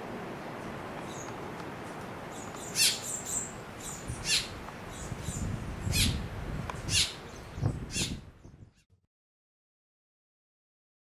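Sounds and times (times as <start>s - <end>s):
bird begging calls: 2.3s - 6.2s, 6.8s - 8.2s.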